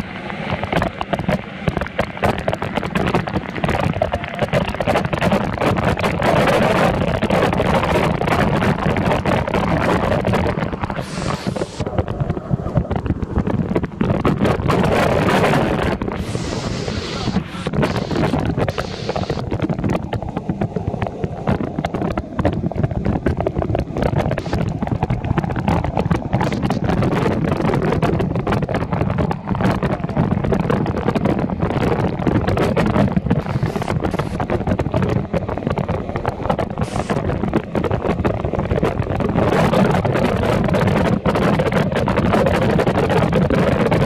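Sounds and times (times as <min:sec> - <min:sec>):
waterfall rushing: 0:10.9 - 0:11.8, 0:16.2 - 0:19.4.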